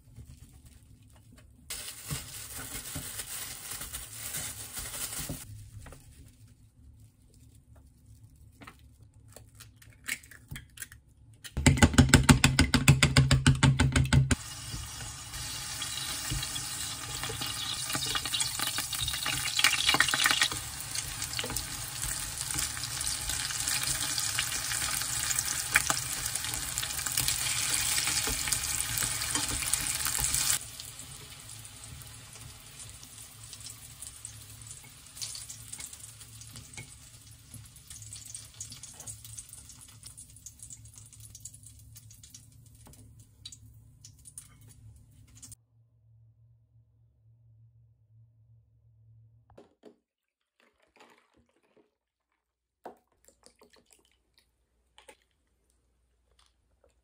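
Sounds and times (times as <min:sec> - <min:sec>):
zucchini sizzling in oil: 0:14.4 - 0:40.6.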